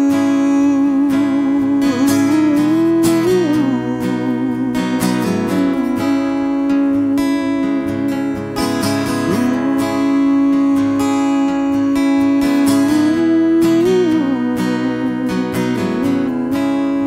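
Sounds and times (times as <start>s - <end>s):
acoustic guitar strumming: 0.0s - 17.0s
held wavering note: 0.0s - 17.0s.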